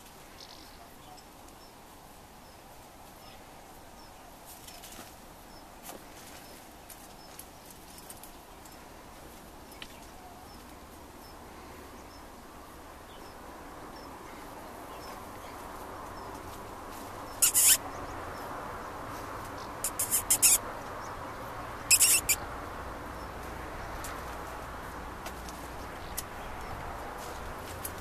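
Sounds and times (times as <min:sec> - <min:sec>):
soft rustle of soil: 0:00.0 - 0:12.6, 0:14.1 - 0:17.7, 0:23.4 - 0:28.0.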